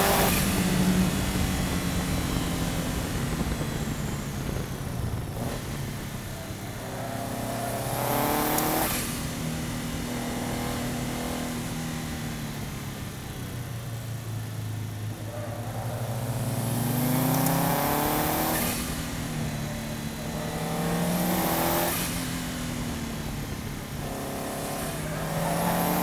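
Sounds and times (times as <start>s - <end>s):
wind noise: 0.0s - 6.8s
car engine running under load: 0.0s - 26.0s
road noise: 0.0s - 26.0s.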